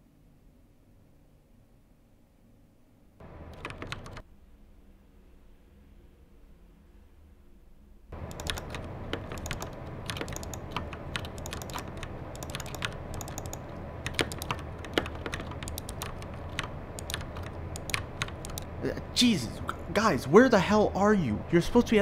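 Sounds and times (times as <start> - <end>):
keyboard keys clicking: 3.2 - 4.2, 8.2 - 18.8.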